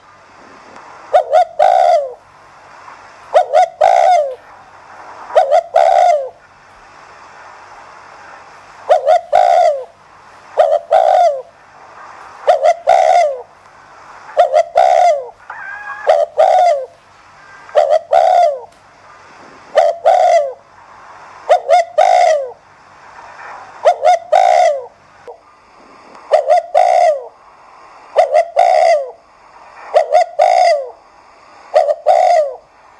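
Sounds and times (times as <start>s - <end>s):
dove cooing: 0.4s - 2.2s, 3.3s - 4.4s, 5.3s - 6.4s, 8.8s - 10.0s, 10.6s - 11.6s, 12.4s - 13.5s, 14.3s - 18.7s, 19.5s - 20.6s, 21.5s - 22.6s, 23.8s - 25.0s, 26.3s - 27.4s, 28.1s - 29.2s, 29.9s - 31.0s, 31.7s - 32.7s.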